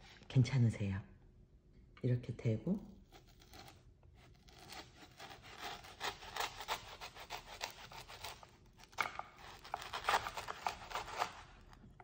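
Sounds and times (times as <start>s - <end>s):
knife sawing through candy: 3.1s - 11.7s.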